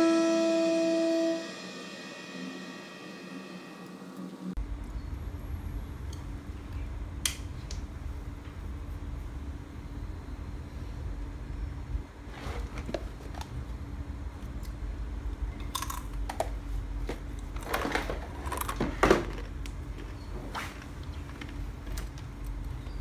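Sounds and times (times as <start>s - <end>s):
person crunching snacks: 15.6s - 16.3s.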